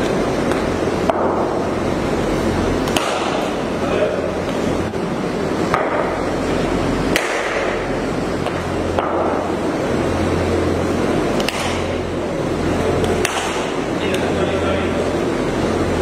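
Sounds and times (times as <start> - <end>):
loud rushing noise: 0.0 - 16.0
low hum: 0.0 - 16.0.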